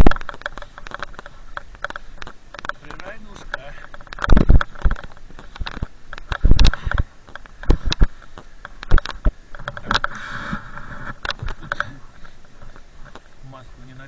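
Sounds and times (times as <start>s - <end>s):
knocks and thumps of gear: 0.0s - 10.2s.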